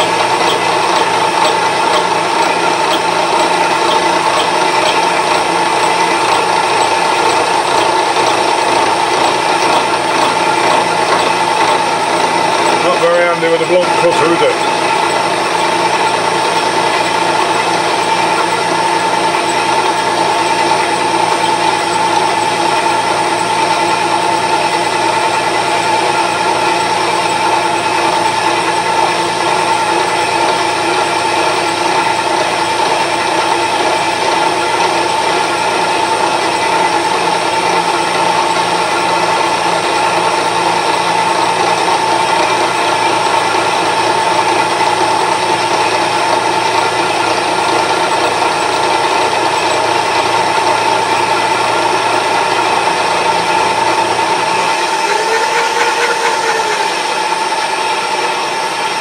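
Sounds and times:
machine cutting gear teeth: 0:00.0 - 0:12.8
high machine whine: 0:00.0 - 0:59.0.

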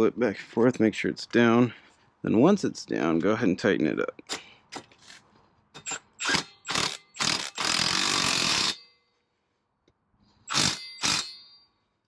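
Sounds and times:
impact wrench tightening nut: 0:05.8 - 0:08.9, 0:10.5 - 0:11.5.

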